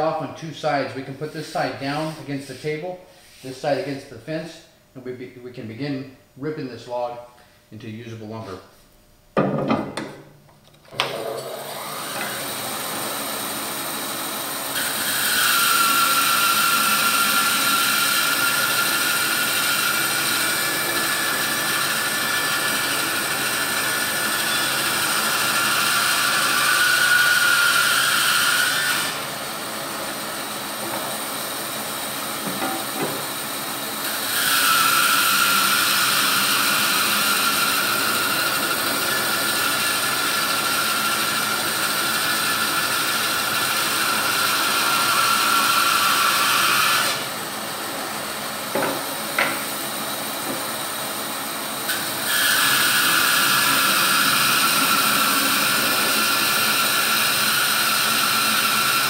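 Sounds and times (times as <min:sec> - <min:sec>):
bandsaw motor running: 0:10.9 - 0:59.0
saw blade cutting wood: 0:14.7 - 0:29.3, 0:32.4 - 0:47.3, 0:51.8 - 0:59.0.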